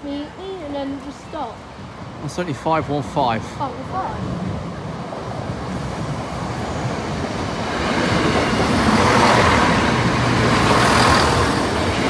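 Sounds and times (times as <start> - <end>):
diesel train passing: 0.0 - 12.0
train wheels rolling on rails: 3.8 - 12.0.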